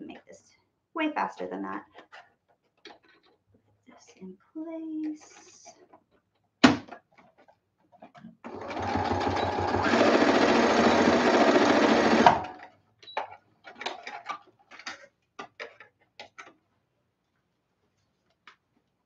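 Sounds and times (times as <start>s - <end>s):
sewing machine stitching: 8.4s - 12.6s.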